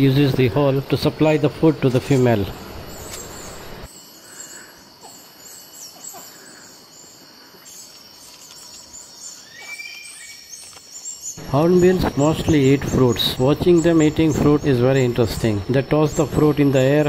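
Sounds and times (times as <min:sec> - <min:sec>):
birds chirping: 0:00.0 - 0:17.0
clear whistled bird note: 0:09.4 - 0:10.4.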